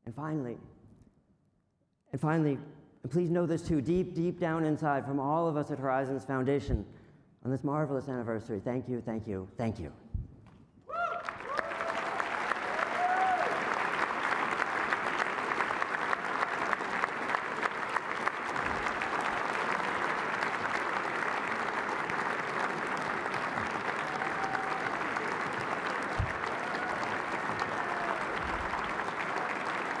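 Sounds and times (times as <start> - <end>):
audience applauding: 11.0 - 30.0.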